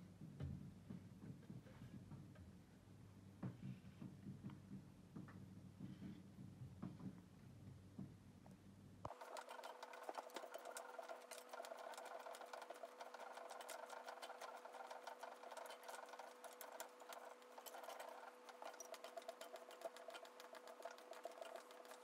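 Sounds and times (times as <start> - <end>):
faint electrical hum: 0.0 - 22.0
small machine rattling: 9.1 - 22.0.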